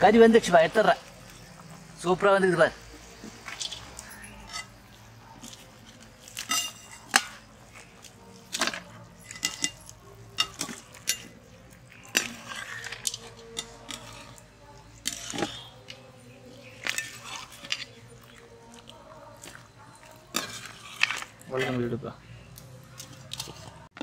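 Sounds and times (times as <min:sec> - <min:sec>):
metal skimmer clinking on pots: 0:03.6 - 0:04.8, 0:06.3 - 0:07.5, 0:08.5 - 0:14.4, 0:15.0 - 0:16.0, 0:20.1 - 0:21.9.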